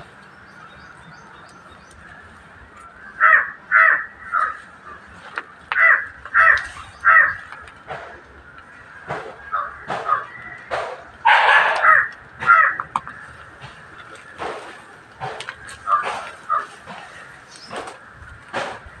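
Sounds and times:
crow cawing: 3.0 - 5.1, 5.7 - 7.6, 8.6 - 14.7, 15.4 - 18.2.

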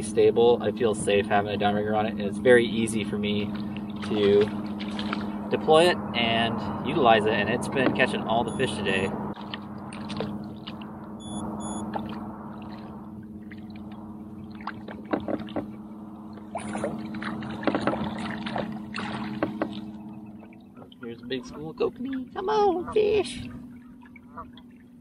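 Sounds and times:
fish splashing at surface: 16.4 - 20.6.

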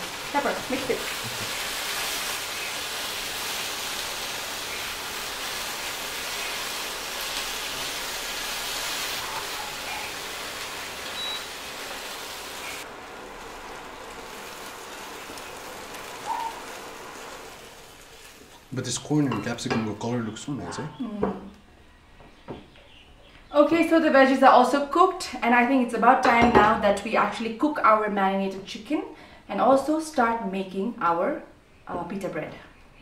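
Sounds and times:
vegetables sizzling in a pan: 0.0 - 19.7.

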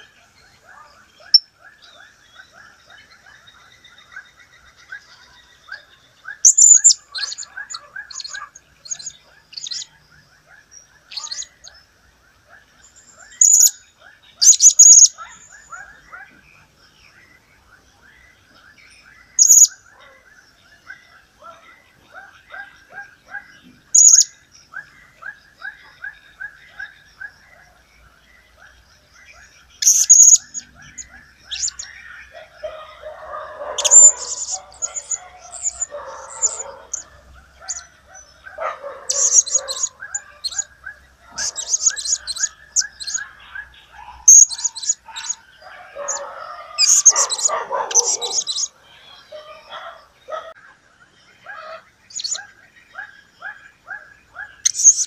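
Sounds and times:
rough low chatter: 0.0 - 55.0
parrot shrill high chirps: 6.4 - 9.8, 14.4 - 15.2, 19.4 - 19.7, 24.0 - 24.3, 29.8 - 31.9, 33.8 - 37.0, 39.1 - 40.7, 41.4 - 43.2, 44.2 - 45.4, 46.8 - 48.7, 54.6 - 55.0.

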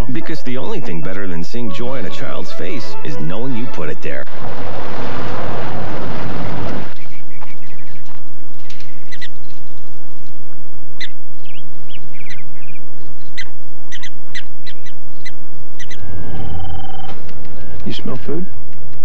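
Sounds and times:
prairie dogs chirping: 0.0 - 3.6, 6.8 - 10.0, 10.9 - 18.6
low steady rumble: 4.2 - 11.4.

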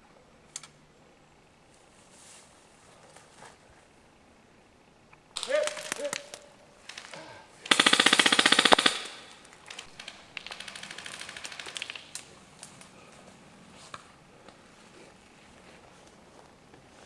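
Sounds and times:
airsoft rifle firing bursts: 6.9 - 12.2.

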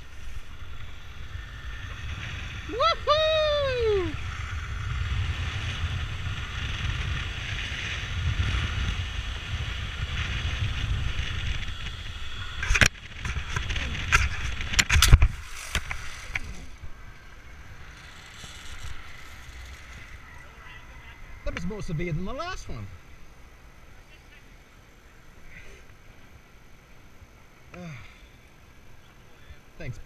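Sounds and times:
wind rushing over camera: 0.0 - 23.6
pulleys running on steel cable: 9.9 - 21.9.

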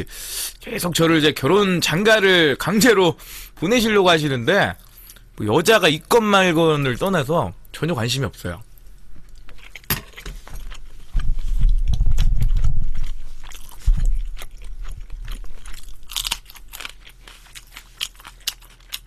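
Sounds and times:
chewing and crunching food: 4.7 - 5.3, 8.8 - 19.0
deep muffled rumble: 11.1 - 15.7.

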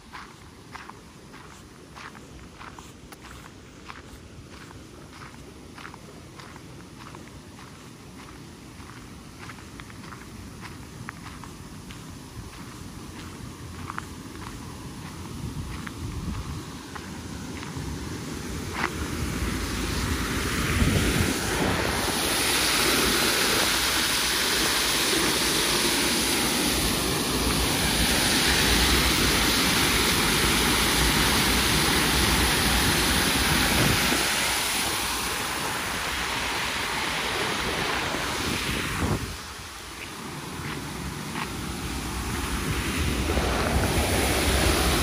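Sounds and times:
water rushing over a weir: 16.4 - 45.0.

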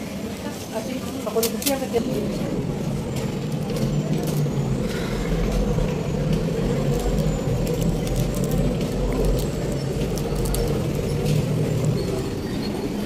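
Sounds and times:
city street rumble: 0.0 - 13.0
paper clicks and rustles: 6.3 - 11.9.

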